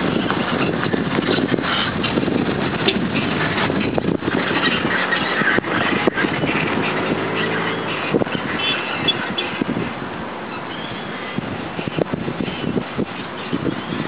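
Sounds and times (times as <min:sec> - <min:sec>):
wind gusts on microphone: 0:00.0 - 0:14.0.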